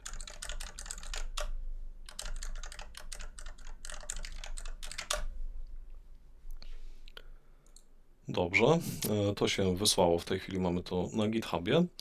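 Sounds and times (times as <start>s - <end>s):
typing on computer keyboard: 0.0s - 5.3s.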